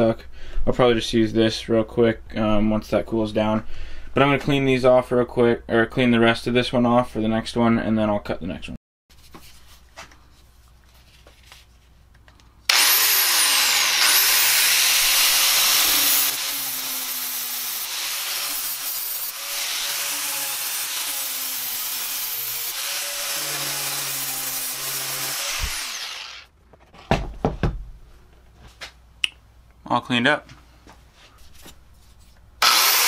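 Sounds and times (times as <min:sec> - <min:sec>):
angle grinder on metal: 0:12.7 - 0:26.5, 0:32.6 - 0:33.0.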